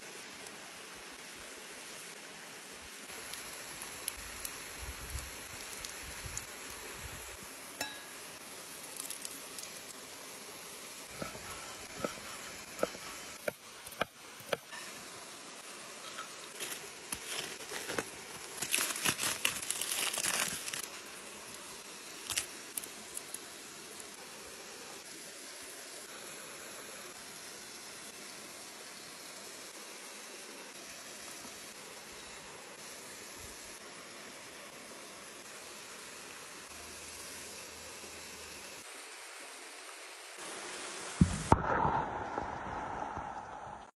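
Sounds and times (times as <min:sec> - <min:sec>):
small waterfall: 0:00.0 - 0:41.7
aluminium foil crinkling and tearing: 0:16.5 - 0:21.1, 0:22.1 - 0:23.4.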